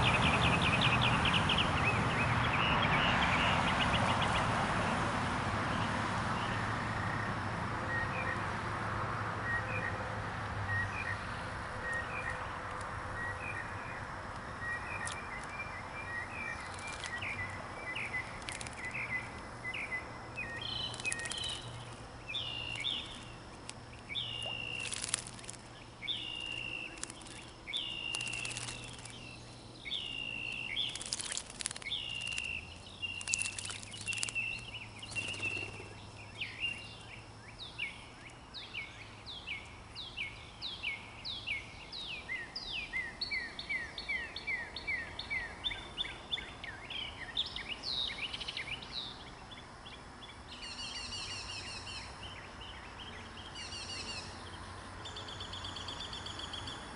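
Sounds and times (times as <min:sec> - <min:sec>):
songbirds singing and calling: 0:00.0 - 0:05.0, 0:05.7 - 0:08.6, 0:09.4 - 0:56.9
bird splashing in water: 0:16.4 - 0:19.4, 0:20.5 - 0:29.2, 0:30.2 - 0:35.9.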